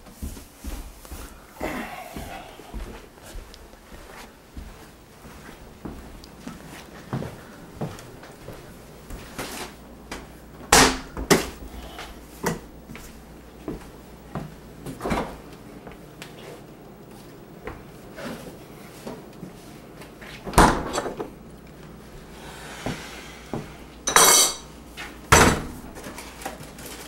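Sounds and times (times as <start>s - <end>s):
refrigerator door: 20.5s - 21.3s, 25.3s - 26.1s
dishes clattering: 24.1s - 24.7s.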